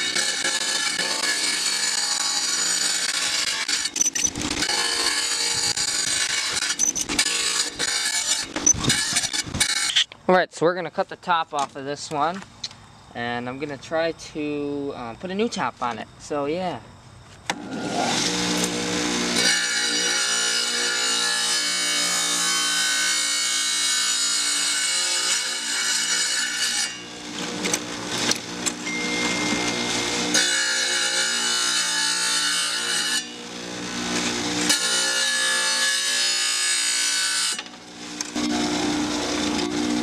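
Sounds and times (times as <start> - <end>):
saw motor humming: 0.0 - 10.0, 17.6 - 40.0
saw blade grinding glass: 0.0 - 10.1, 19.3 - 33.4, 34.0 - 37.7.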